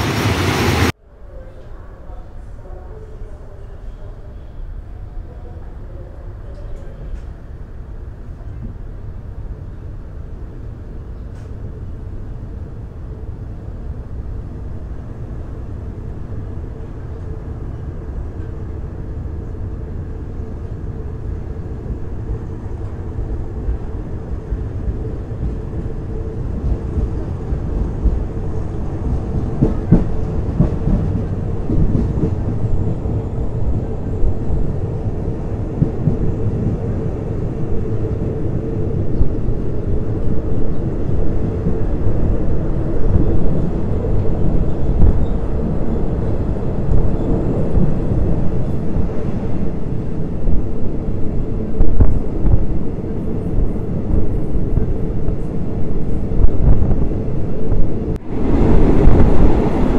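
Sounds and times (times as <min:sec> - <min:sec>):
train wheels rumbling on rails: 0:14.8 - 0:59.9
train carriage knocking and jolting: 0:29.1 - 0:32.7.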